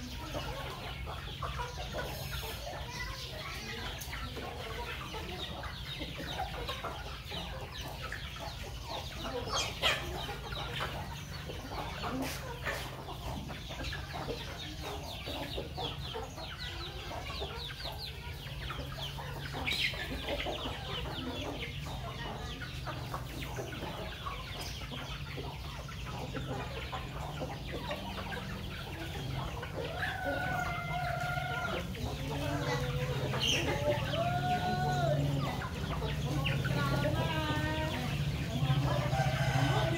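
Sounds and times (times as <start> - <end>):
chickens clucking: 0.0 - 39.9
rooster crowing: 39.1 - 39.9.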